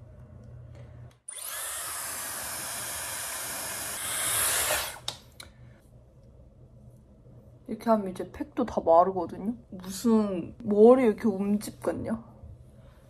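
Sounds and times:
hair dryer blowing: 1.3s - 5.1s.

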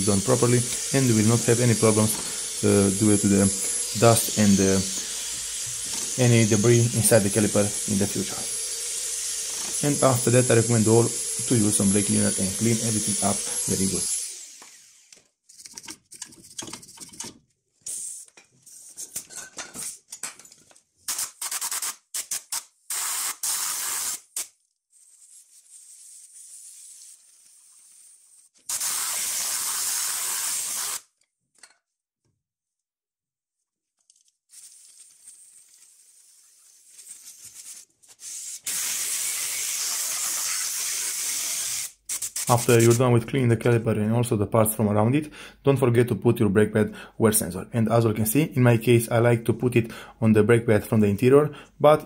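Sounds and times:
wire brush scrubbing metal: 0.0s - 14.1s
hissing spray: 25.8s - 31.0s, 34.6s - 42.9s.

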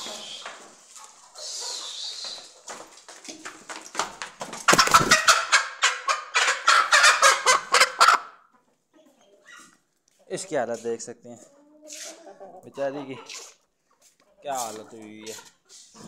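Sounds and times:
chickens flapping wings: 0.0s - 5.4s.

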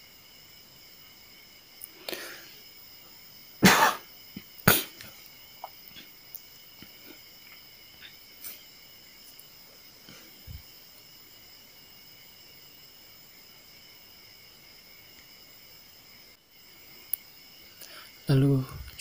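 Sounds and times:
faint breathy sound: 2.0s - 2.6s
person coughing: 3.6s - 4.1s, 4.7s - 4.9s.

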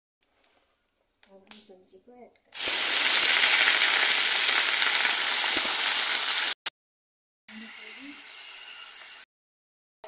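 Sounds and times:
vegetables sizzling in hot oil: 2.5s - 6.6s.

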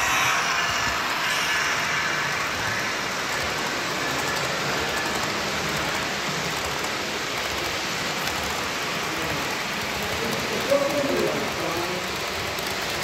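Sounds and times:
model train rolling on track: 0.0s - 13.0s.

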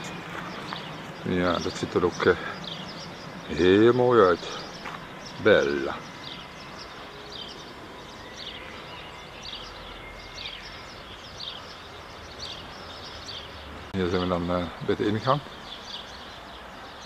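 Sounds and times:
bird chirping: 0.0s - 17.0s
steady background noise: 0.0s - 17.0s.

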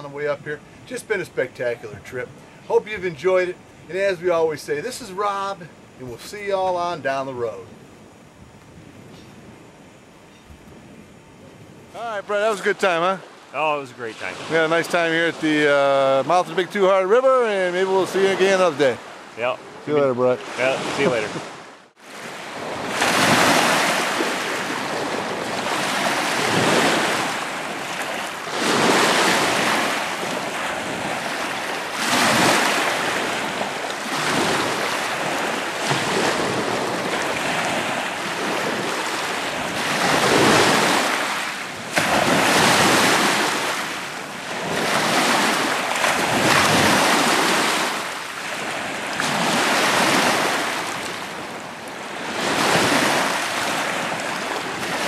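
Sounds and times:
lake waves washing ashore: 0.0s - 8.2s, 10.8s - 55.0s
wind rumbling on microphone: 7.6s - 12.0s, 19.2s - 55.0s.

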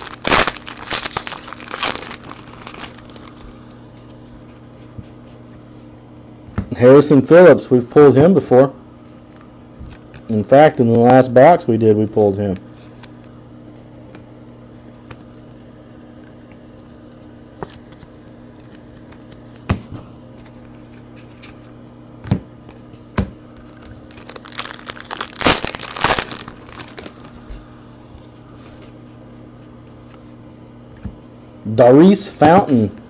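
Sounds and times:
plastic packaging crinkling: 0.0s - 3.6s, 23.6s - 27.4s
low electrical hum: 0.0s - 33.0s.

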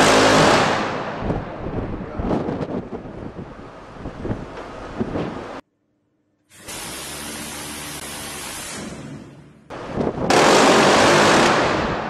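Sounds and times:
rotary cannon firing bursts: 6.7s - 12.0s.

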